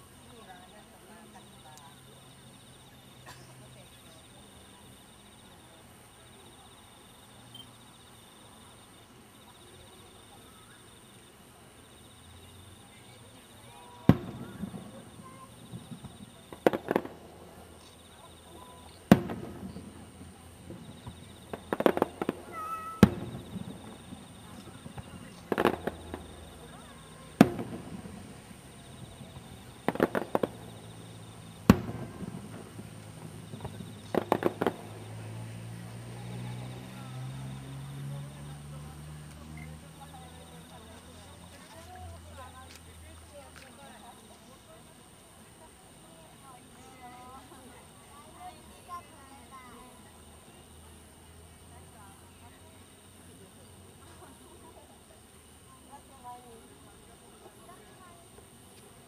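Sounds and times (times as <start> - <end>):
firework cracks: 13.7 - 37.5
firework bang with echo: 13.8 - 17.2, 18.5 - 35.1.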